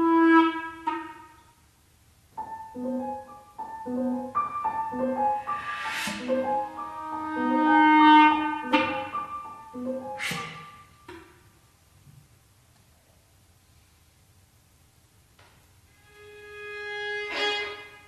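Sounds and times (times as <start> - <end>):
cello: 0.0 - 1.2, 3.9 - 10.6, 16.0 - 18.0
clarinet: 0.0 - 1.4, 2.8 - 10.9, 16.0 - 18.0
flute: 0.0 - 1.4, 3.9 - 10.9
violin: 4.9 - 10.6, 15.9 - 18.0
hiss: 5.3 - 7.1, 10.2 - 10.8.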